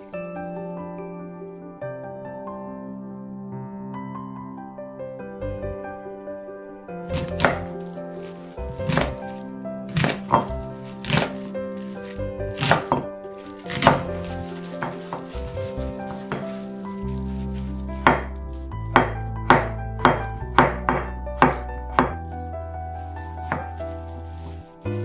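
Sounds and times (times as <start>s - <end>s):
knife chopping on cutting board: 7.1s - 7.7s, 8.7s - 9.2s, 9.9s - 11.4s, 12.5s - 13.0s, 13.7s - 14.1s, 18.0s - 18.3s, 18.9s - 22.2s.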